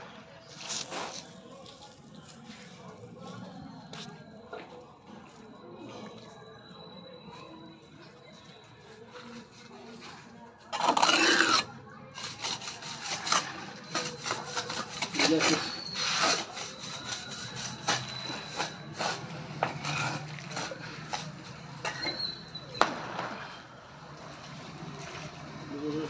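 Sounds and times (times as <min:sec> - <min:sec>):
steel trowel scraping wet cement: 0:09.2 - 0:22.6.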